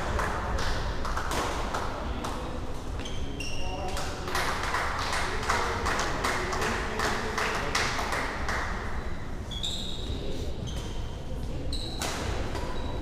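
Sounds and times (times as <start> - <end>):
voices in a hall: 0.0 - 13.0
shoe squeaks on wooden floor: 9.5 - 11.0.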